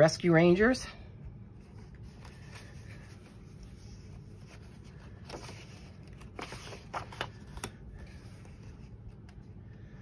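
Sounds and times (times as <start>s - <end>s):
paper pages rustling: 1.6s - 9.6s.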